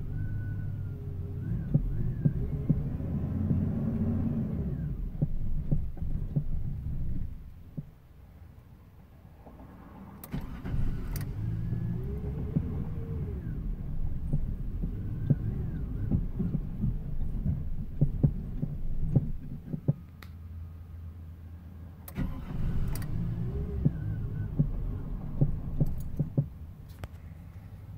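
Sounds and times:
truck engine cranking: 0:10.2 - 0:20.0, 0:22.0 - 0:27.2.

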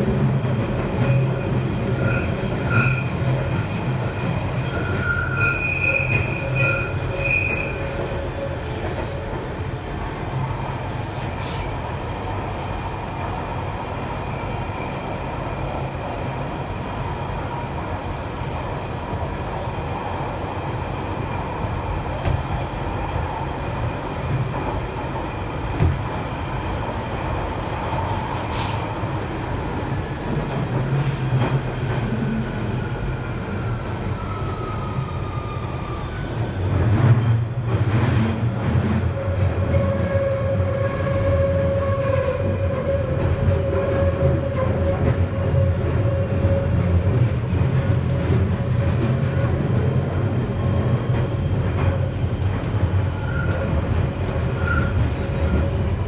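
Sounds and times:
train wheels rumbling on rail: 0:00.0 - 0:56.0
train whining tones: 0:01.0 - 0:09.4.

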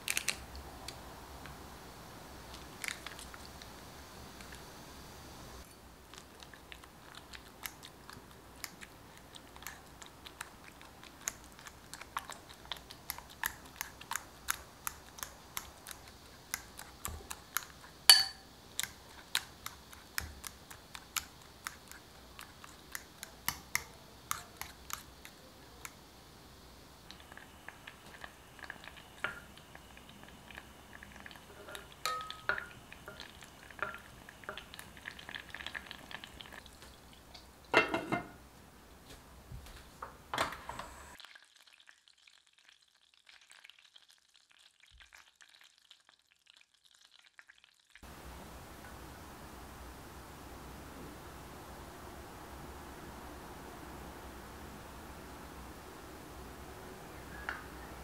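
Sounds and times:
faint steady hiss: 0:00.0 - 0:42.1, 0:48.0 - 0:58.0
wooden spoon stirring in saucepan: 0:05.7 - 0:26.0, 0:27.1 - 0:38.4.

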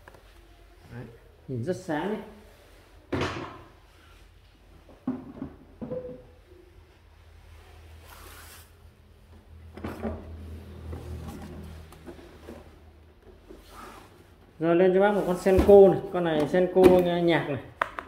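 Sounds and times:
objects knocking and clattering: 0:04.8 - 0:06.4.

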